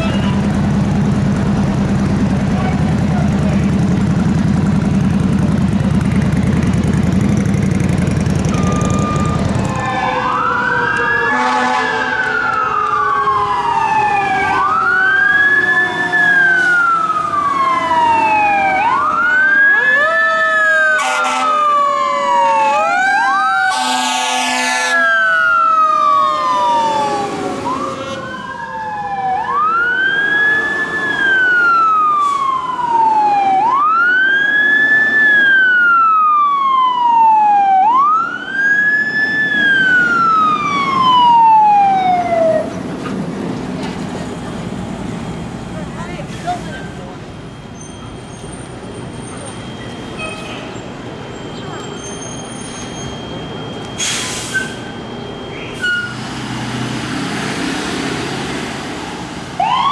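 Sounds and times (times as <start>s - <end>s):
fire truck siren wailing: 0.0s - 59.9s
mechanical siren winding down: 8.3s - 23.8s, 25.0s - 42.8s, 59.6s - 59.9s
air horn blasts: 11.1s - 12.3s, 21.0s - 21.6s, 23.7s - 25.1s.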